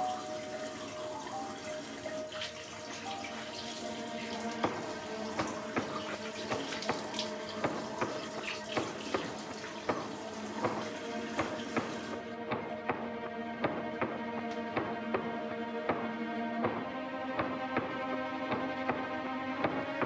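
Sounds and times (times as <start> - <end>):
tap water running into sink: 0.0 - 12.2
water splashing on face: 0.0 - 12.2.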